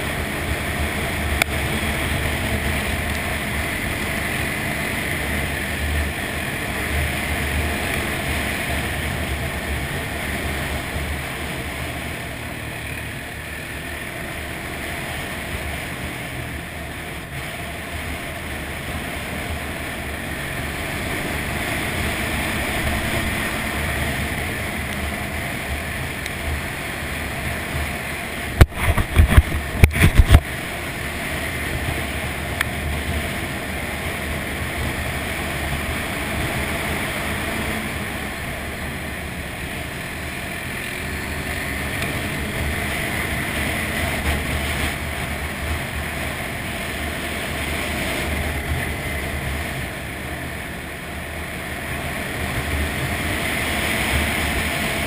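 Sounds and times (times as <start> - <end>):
atv engine running: 0.0 - 55.0
wind on microphone: 28.6 - 30.7.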